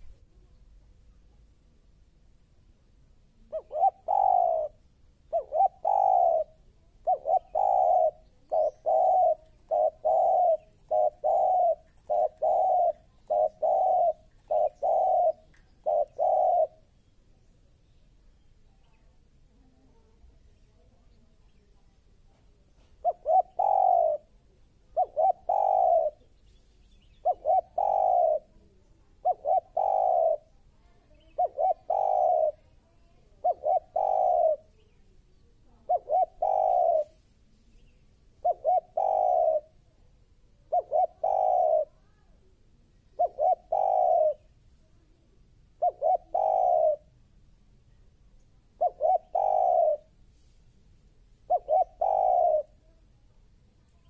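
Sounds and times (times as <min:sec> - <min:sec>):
dove cooing: 0:03.4 - 0:16.9, 0:22.8 - 0:26.3, 0:27.2 - 0:34.9, 0:35.7 - 0:37.2, 0:38.4 - 0:39.9, 0:40.5 - 0:42.1, 0:43.1 - 0:44.5, 0:45.7 - 0:47.1, 0:48.7 - 0:50.2, 0:51.4 - 0:53.0.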